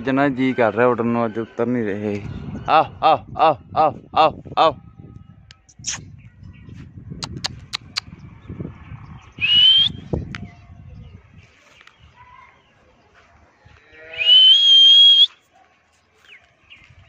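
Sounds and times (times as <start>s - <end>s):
rising human whistles: 9.4s - 10.0s, 14.1s - 15.4s.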